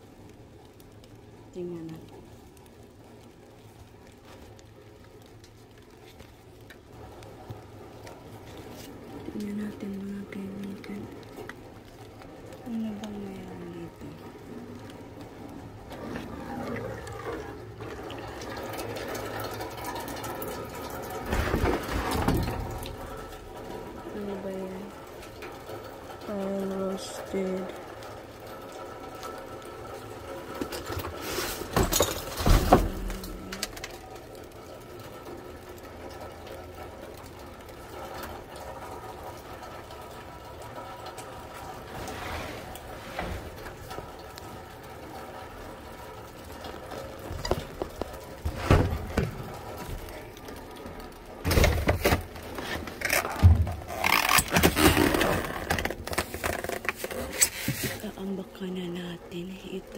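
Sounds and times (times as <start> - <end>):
background hum: 0.0 - 59.9
cardboard and plastic rustling: 20.9 - 25.4, 30.1 - 34.4, 45.6 - 58.4.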